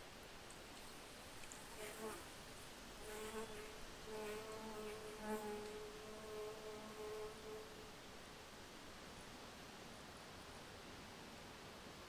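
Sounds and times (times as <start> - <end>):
insect buzzing: 3.0 - 7.9.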